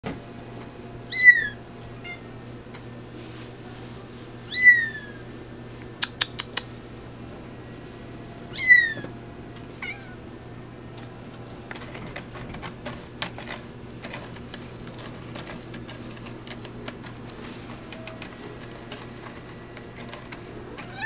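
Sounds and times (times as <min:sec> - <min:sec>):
kitten mewing: 0:01.1 - 0:02.2, 0:04.5 - 0:05.2, 0:08.5 - 0:09.1, 0:20.7 - 0:21.0.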